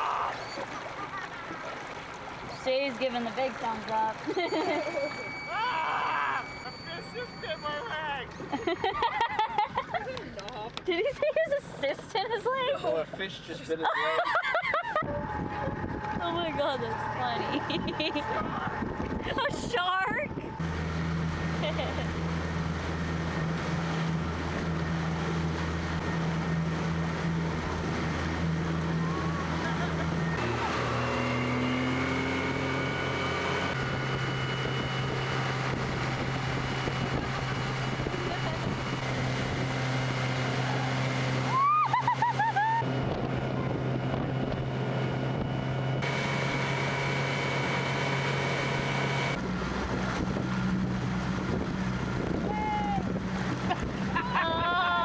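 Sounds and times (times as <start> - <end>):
short high squeals: 0.0 - 0.8, 4.4 - 8.6
rushing water: 0.0 - 8.5, 16.0 - 44.0
motorboat engine drone: 0.0 - 55.0
wind: 0.0 - 55.0
wind on microphone: 14.9 - 20.7, 33.7 - 40.6, 49.4 - 54.8.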